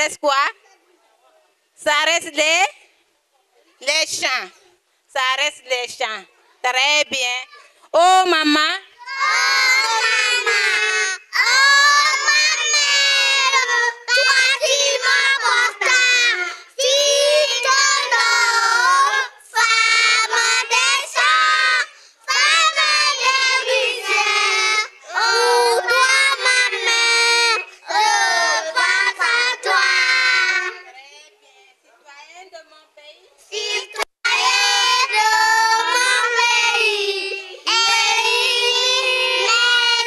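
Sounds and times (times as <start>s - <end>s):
children singing: 9.0s - 30.9s, 33.5s - 40.0s.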